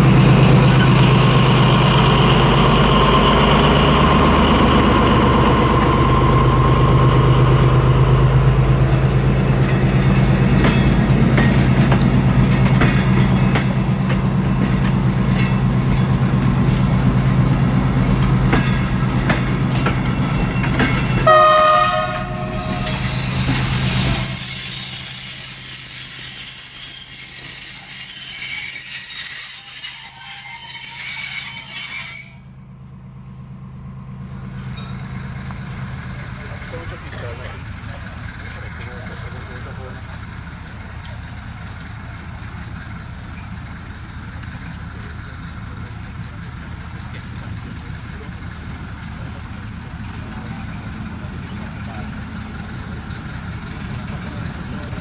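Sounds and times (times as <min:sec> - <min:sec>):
diesel locomotive engine running: 0:00.0 - 0:31.0, 0:31.6 - 0:55.0
locomotive horn blast: 0:21.2 - 0:23.2
train wheels squealing: 0:22.4 - 0:32.9, 0:43.2 - 0:43.9.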